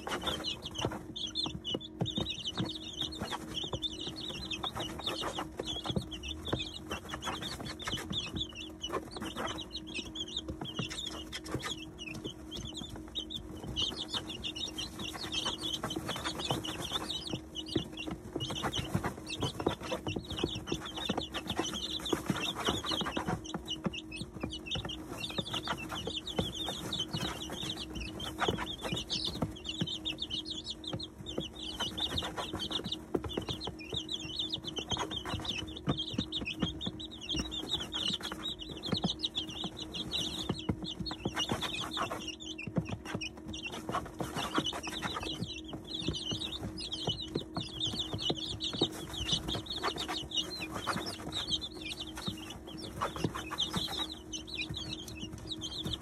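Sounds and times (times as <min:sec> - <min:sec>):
chicks pecking and scratching: 0:00.0 - 0:56.0
chicks peeping: 0:00.0 - 0:56.0.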